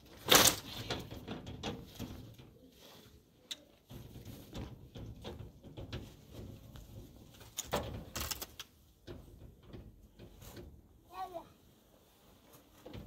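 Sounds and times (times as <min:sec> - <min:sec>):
metal door rattling and clicking: 0:00.0 - 0:02.6, 0:03.8 - 0:10.8.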